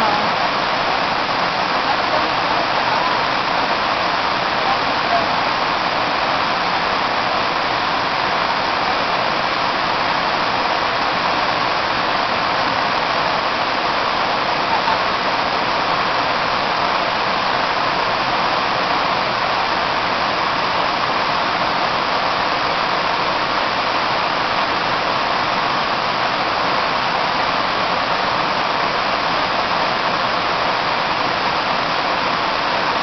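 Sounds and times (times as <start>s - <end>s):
waterfall rushing over rock: 0.0s - 33.0s.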